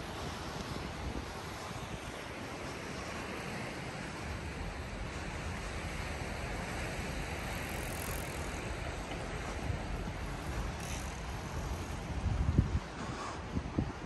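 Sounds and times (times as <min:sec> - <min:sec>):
wind buffeting microphone: 0:04.2 - 0:14.0.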